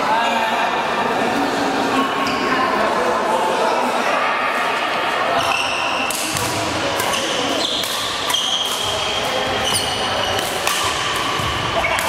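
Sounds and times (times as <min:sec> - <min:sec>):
sneakers squeaking on court floor: 0:05.4 - 0:12.0
rackets smacking shuttlecock: 0:06.0 - 0:12.0.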